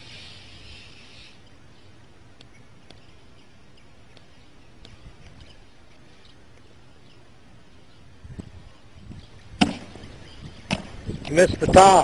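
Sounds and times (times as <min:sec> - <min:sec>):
low wind rumble on microphone: 0:07.0 - 0:12.0.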